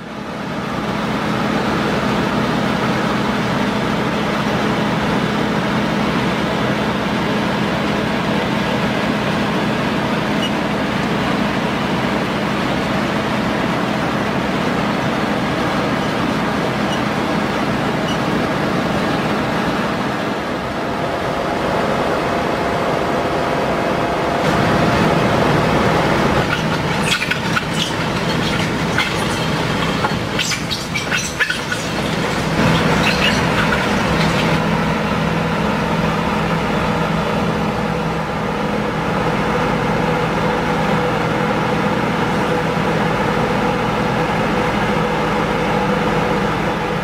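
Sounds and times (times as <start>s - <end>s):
heavy diesel engines droning: 0.0s - 47.0s
milling machinery: 24.5s - 35.3s.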